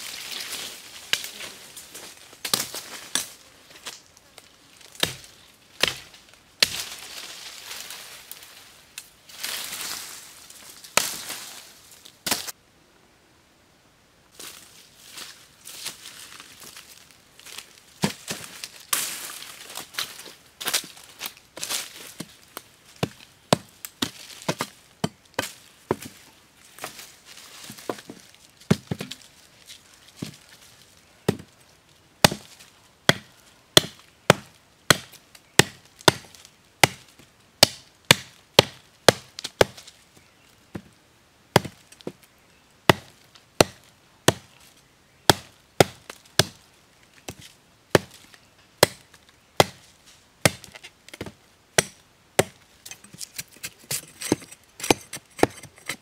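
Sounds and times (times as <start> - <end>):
machete chopping wood: 5.0 - 6.9, 23.0 - 26.0, 32.2 - 32.5, 33.1 - 39.8, 41.6 - 41.8, 42.9 - 44.5, 45.3 - 46.6, 48.0 - 48.2, 48.8 - 49.8, 50.4 - 56.0.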